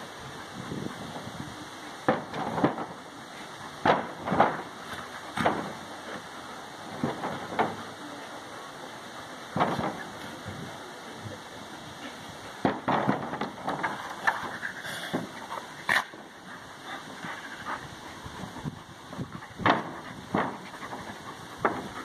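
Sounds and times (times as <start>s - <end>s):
dogs snarling and growling: 13.5s - 22.0s.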